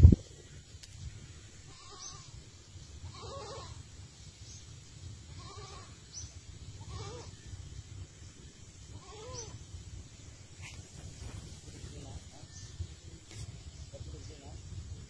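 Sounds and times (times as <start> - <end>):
low steady rumble: 0.0 - 15.0
animal giving short calls: 3.1 - 3.8.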